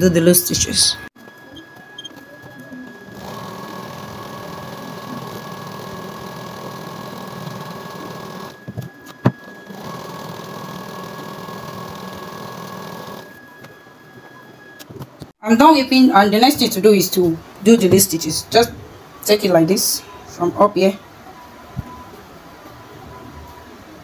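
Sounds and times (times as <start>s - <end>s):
sewing machine running: 3.0s - 8.6s, 9.4s - 13.4s.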